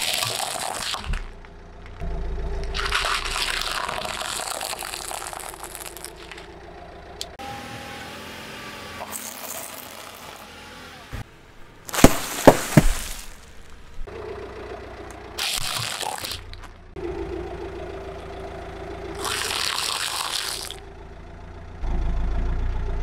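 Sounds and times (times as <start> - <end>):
plastic cups cracking: 0.0 - 1.4, 2.7 - 6.5, 15.4 - 16.7, 19.2 - 20.8
snacks crunching: 2.7 - 6.5, 15.4 - 16.7
snack bags popping: 2.8 - 6.5, 11.9 - 13.8, 15.4 - 16.7.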